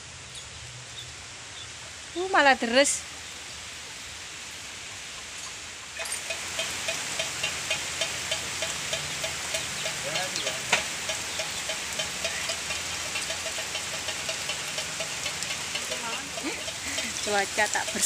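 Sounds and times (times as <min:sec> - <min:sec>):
heavy rain on roofs and leaves: 0:00.0 - 0:18.0
even ticking: 0:05.1 - 0:18.0.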